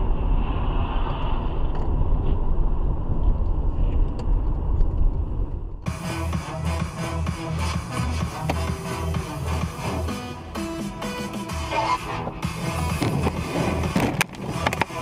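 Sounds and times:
car engine and tyre noise: 0:00.0 - 0:15.0
music: 0:05.8 - 0:15.0.

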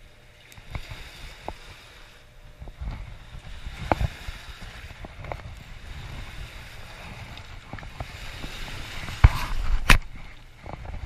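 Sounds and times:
wind on microphone: 0:00.0 - 0:11.0
river water washing on rocks: 0:02.4 - 0:11.0.

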